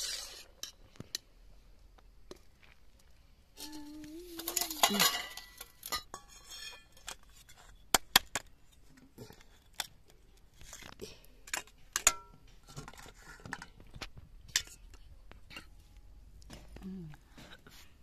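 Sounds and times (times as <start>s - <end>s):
metal spoon clinking on pot: 3.6s - 7.0s.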